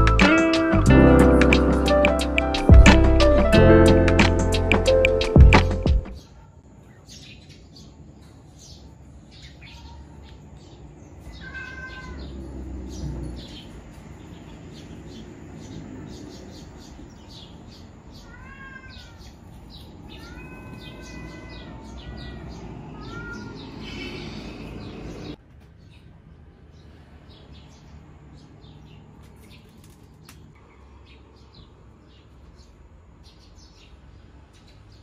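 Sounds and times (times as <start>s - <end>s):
cat meowing: 11.3s - 12.5s, 18.1s - 24.2s.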